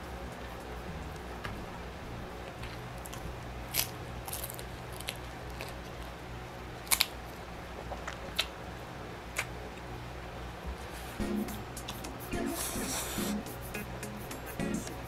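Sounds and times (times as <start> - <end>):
low steady hum: 0.0 - 15.0
pork rind crunching: 2.4 - 7.3.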